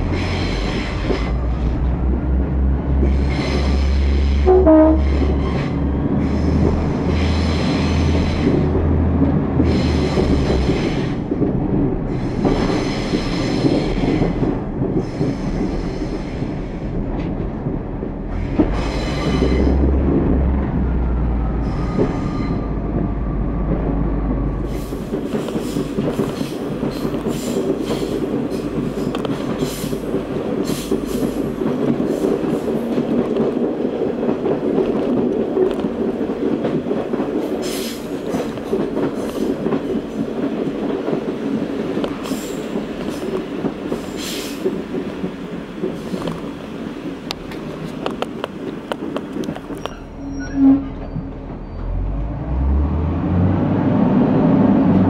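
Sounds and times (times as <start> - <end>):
train running noise: 0.0 - 55.0
wheels clicking on track: 22.9 - 50.3.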